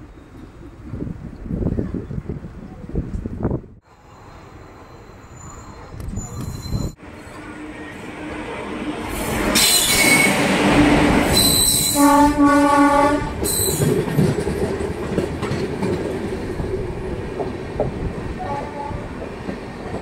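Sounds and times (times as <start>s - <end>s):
train wheels rumbling on track: 0.0s - 20.0s
high-pitched wheel squeals: 4.2s - 7.4s, 11.3s - 12.1s
train horn blast: 11.4s - 13.6s, 18.4s - 19.1s.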